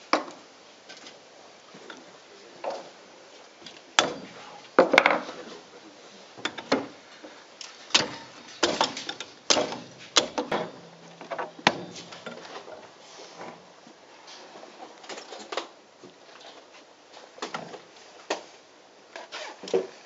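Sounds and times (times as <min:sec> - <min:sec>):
wood and metal knocks and clatters: 0:04.0 - 0:05.4, 0:07.9 - 0:13.6.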